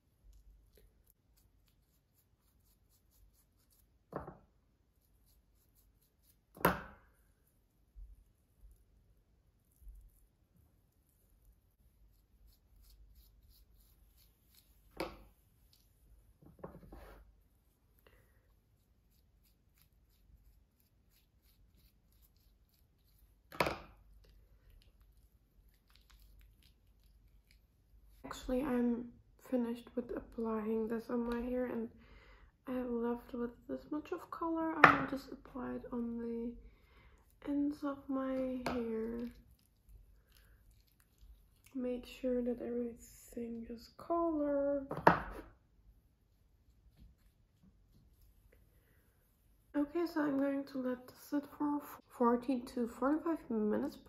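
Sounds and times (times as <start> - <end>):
rustling of hair and gloves: 0.0 - 28.7, 45.3 - 51.3.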